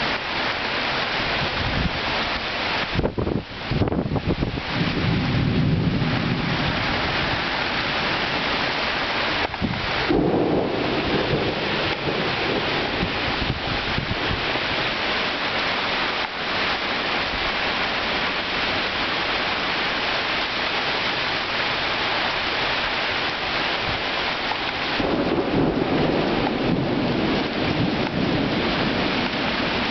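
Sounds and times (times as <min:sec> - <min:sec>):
heavy rain hiss: 0:00.0 - 0:29.9
thunder rumbling: 0:03.0 - 0:15.7, 0:24.6 - 0:29.9.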